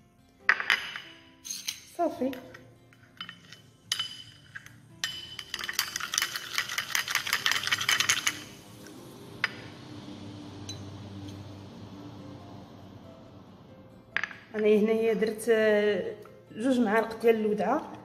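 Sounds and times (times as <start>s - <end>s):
metal spoon clinking on ceramic dish: 0.6s - 8.6s.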